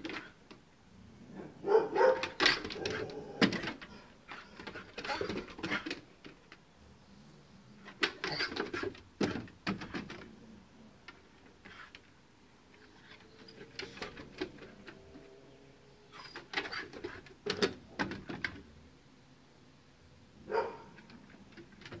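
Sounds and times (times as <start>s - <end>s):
dog claws clicking on wooden deck: 2.0s - 6.6s, 7.9s - 10.3s, 12.8s - 15.0s, 16.2s - 18.6s, 21.0s - 22.0s.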